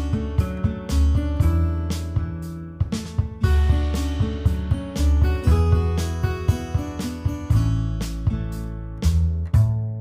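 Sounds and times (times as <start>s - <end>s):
acoustic guitar music with bass: 0.0s - 10.0s.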